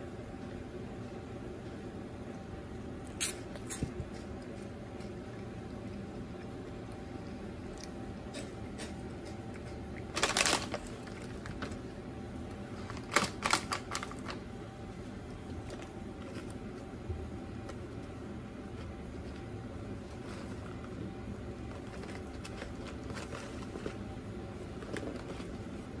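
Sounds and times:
steady low hum: 0.0 - 26.0
snack bag rustling: 10.1 - 11.9, 12.5 - 14.4, 15.0 - 26.0.

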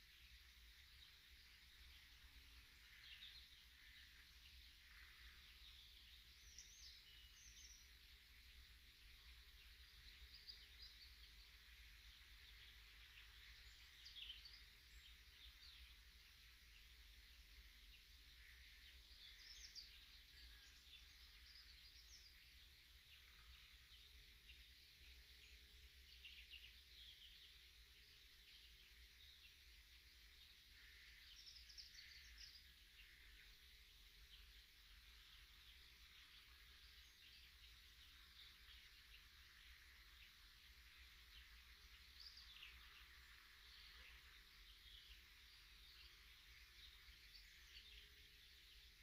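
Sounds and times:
songbirds chirping and trilling: 0.0 - 49.0.

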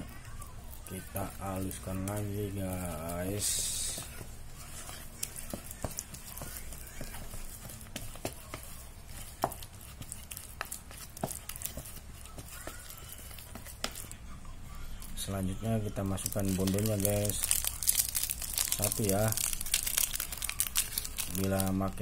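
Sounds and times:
spoon mashing crumbly mix: 0.0 - 22.0.

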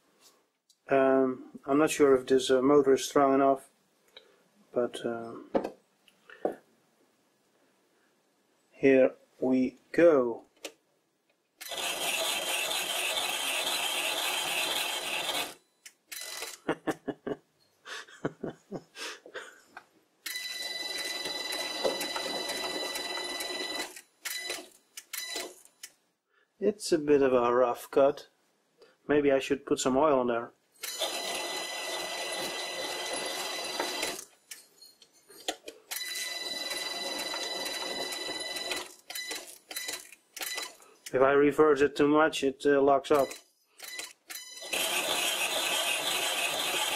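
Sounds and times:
lathe whining: 44.6 - 46.9.

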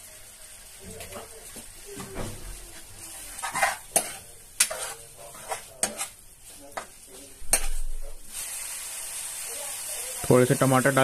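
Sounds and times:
light sizzle: 0.0 - 11.0
ladle clinking and scraping pan: 3.0 - 6.2, 6.8 - 7.9.

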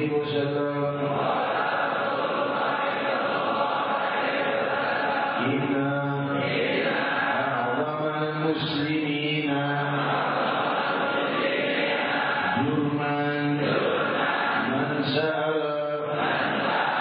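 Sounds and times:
man chanting into microphone: 0.0 - 1.4, 5.2 - 10.5, 11.7 - 16.6
congregation chanting: 0.0 - 17.0.

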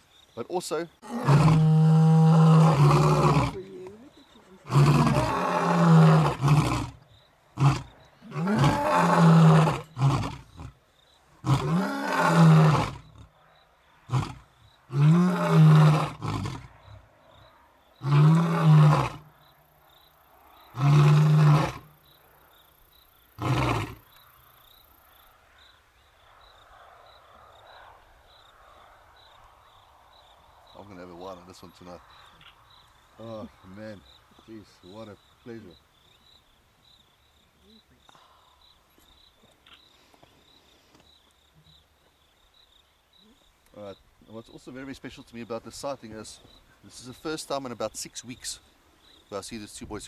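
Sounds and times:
faint crickets chirping: 0.0 - 50.0
lions roaring: 4.6 - 7.0, 7.6 - 10.8.

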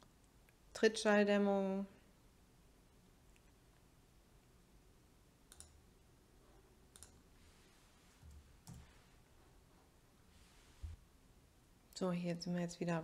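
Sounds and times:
computer mouse clicks: 5.5 - 5.8, 6.9 - 7.2, 8.2 - 8.9.

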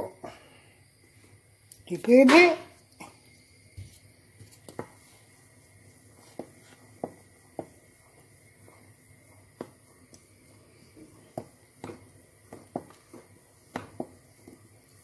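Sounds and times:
wooden spoon stirring thick soup: 3.9 - 15.0.

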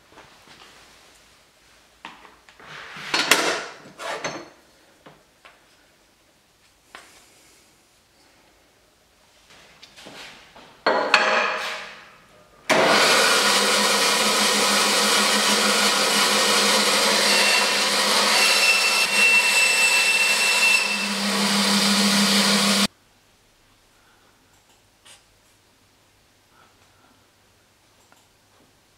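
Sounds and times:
bandsaw cutting metal: 12.7 - 22.9.

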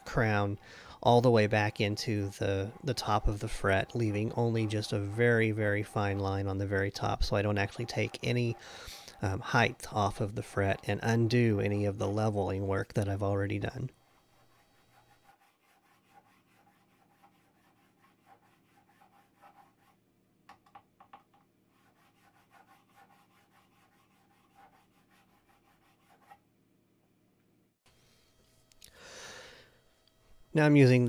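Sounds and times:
file rasping on fret: 0.2 - 11.8, 13.6 - 19.9, 21.8 - 26.4.

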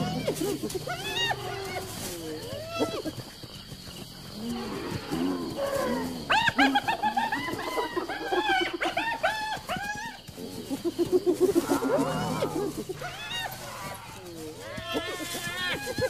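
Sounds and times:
animal squealing: 0.0 - 3.2, 5.0 - 16.0
low pulsing animal calls: 0.0 - 16.0.

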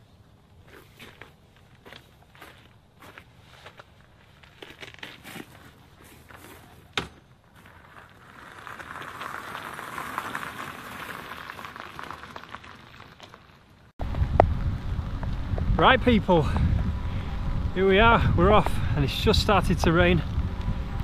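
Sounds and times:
tyres crunching over gravel: 0.5 - 16.7.

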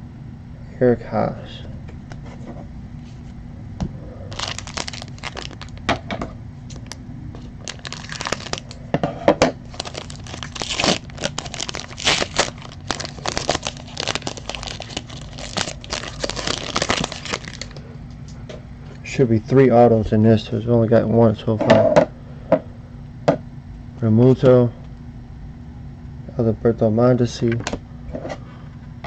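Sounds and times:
foil pack tearing and crinkling: 4.3 - 5.9, 7.6 - 8.8, 9.6 - 17.8.

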